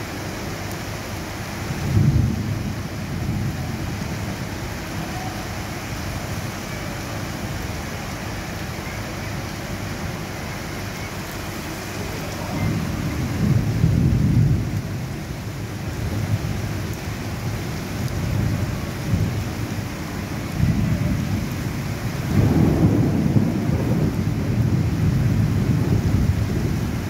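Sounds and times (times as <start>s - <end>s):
heavy rain falling: 0.0s - 27.0s
low rumble of thunder: 1.6s - 6.6s, 11.2s - 27.0s.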